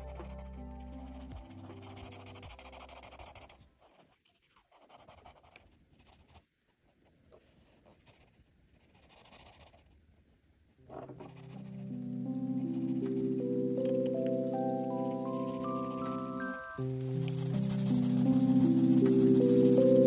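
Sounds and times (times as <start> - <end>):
soft background music: 0.0 - 3.6, 10.9 - 20.0
marker scratching on paper: 0.1 - 6.4, 7.4 - 9.9, 10.9 - 11.9, 14.8 - 20.0.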